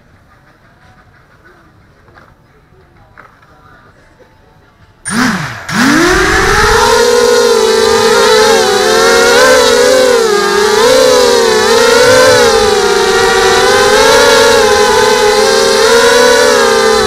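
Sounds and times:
drone motors whining: 0:05.1 - 0:17.0.

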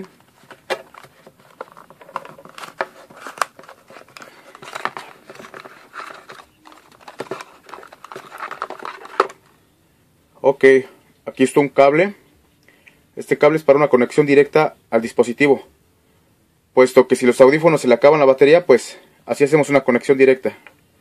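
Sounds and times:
cable rustling and crinkling: 0:00.0 - 0:09.6.

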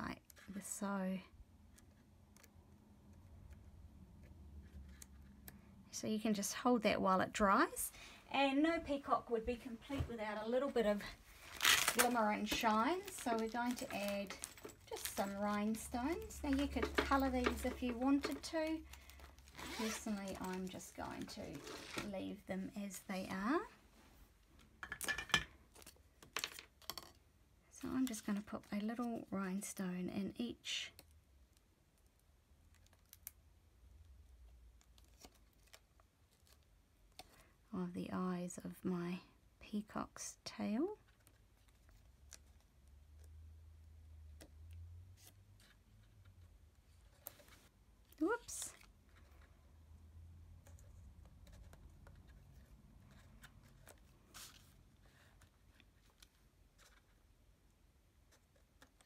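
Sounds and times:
low room hum: 0:00.0 - 0:59.0
paper rustle: 0:50.8 - 0:57.2.

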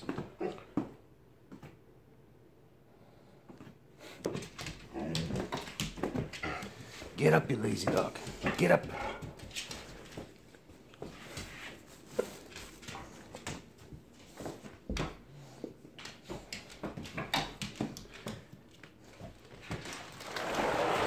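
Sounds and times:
soft dog noises: 0:00.0 - 0:01.0, 0:03.0 - 0:19.6
dog claws scraping on floor: 0:07.8 - 0:18.5, 0:19.1 - 0:21.0.

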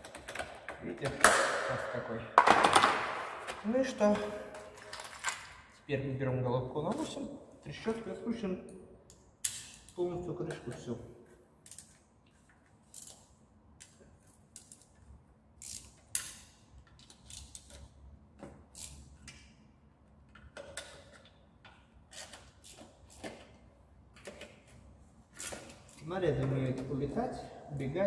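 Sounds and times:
ratchet wrench clicking: 0:12.9 - 0:13.3, 0:15.6 - 0:17.9, 0:18.7 - 0:19.4.

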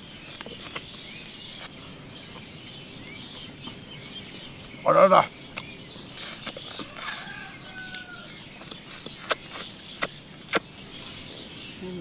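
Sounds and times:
person chewing and lip-smacking: 0:05.6 - 0:07.2, 0:08.6 - 0:10.7
sharp smacks: 0:09.0 - 0:10.7.

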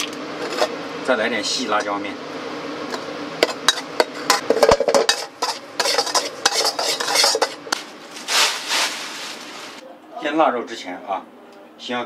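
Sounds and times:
spatula scraping and clinking pan: 0:03.4 - 0:07.8.

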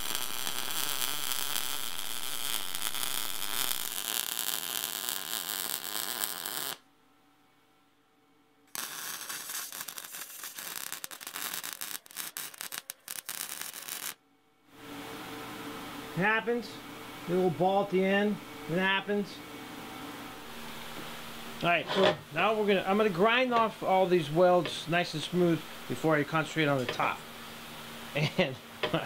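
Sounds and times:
welding arc crackling: 0:00.0 - 0:06.8, 0:08.7 - 0:14.2.

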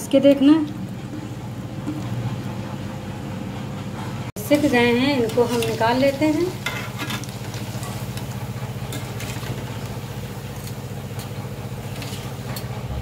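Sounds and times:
low pulsing machine hum: 0:00.0 - 0:13.0
hot oil sizzling: 0:04.4 - 0:13.0
metal utensils clinking on pan: 0:05.1 - 0:08.1.

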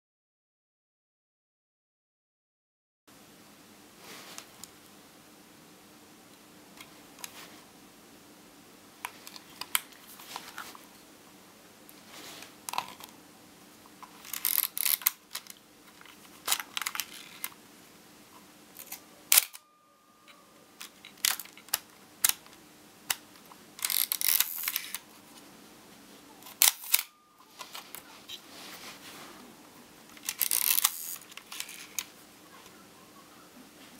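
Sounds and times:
film advance lever ratchet: 0:14.2 - 0:15.5, 0:23.8 - 0:25.0, 0:26.5 - 0:27.1, 0:30.2 - 0:32.0
camera control clicks: 0:18.8 - 0:19.6, 0:26.5 - 0:27.1, 0:30.2 - 0:32.1
camera shutter clack: 0:18.8 - 0:19.7, 0:26.5 - 0:27.2.

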